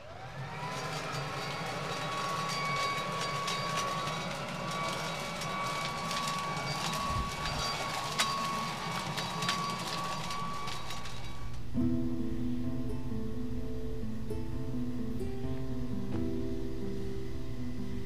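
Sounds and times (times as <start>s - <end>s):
leaf blower high whine: 0.0s - 12.0s
debris clicking against blower: 0.3s - 11.8s.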